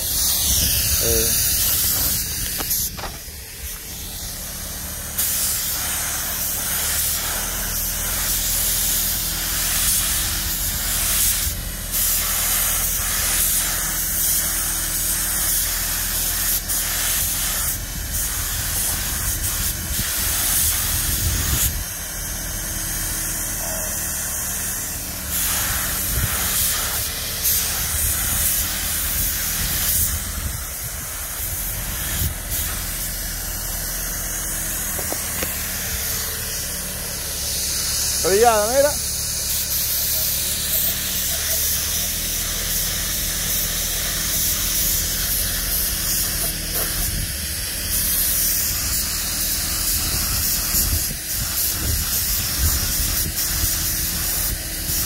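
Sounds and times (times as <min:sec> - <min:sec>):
steady low hum: 0:00.0 - 0:15.7, 0:16.4 - 0:40.7
paint spray gun hissing: 0:00.0 - 0:55.0.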